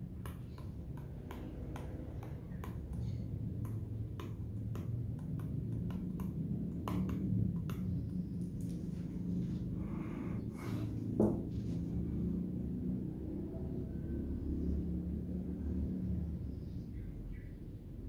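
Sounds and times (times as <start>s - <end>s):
steady low hum: 0.0s - 18.0s
stylus tapping on touchscreen: 0.2s - 8.7s.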